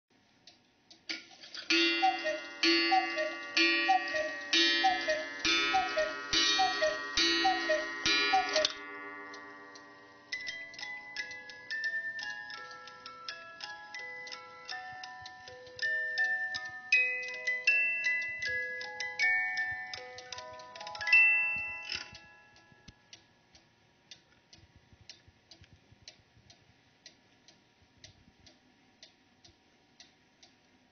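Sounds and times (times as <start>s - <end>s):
cuckoo clock calls: 1.6s - 22.9s
ringing gong strike: 1.7s - 10.7s
music box note: 1.7s - 22.9s.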